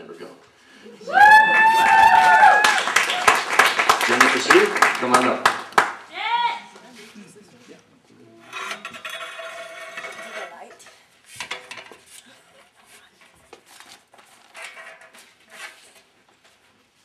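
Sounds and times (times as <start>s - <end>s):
clattering: 8.5s - 12.1s.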